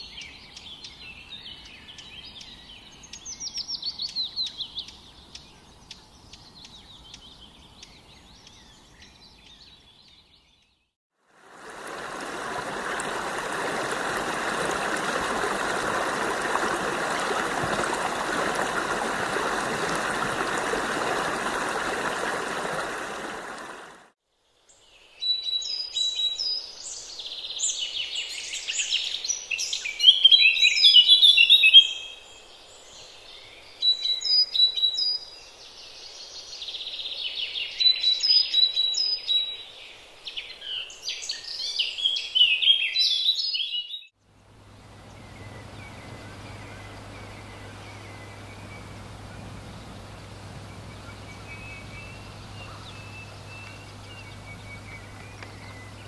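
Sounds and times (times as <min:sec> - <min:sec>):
songbirds chirping and trilling: 0:00.0 - 0:10.9, 0:11.6 - 0:56.0
stream rushing: 0:11.3 - 0:24.2, 0:44.4 - 0:56.0.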